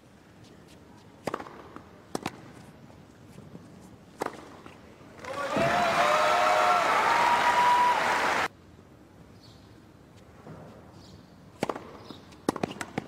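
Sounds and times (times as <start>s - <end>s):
tennis ball struck by rackets: 1.2s - 2.5s, 4.2s - 4.7s, 11.6s - 13.0s
crowd applause and cheering: 5.2s - 8.5s.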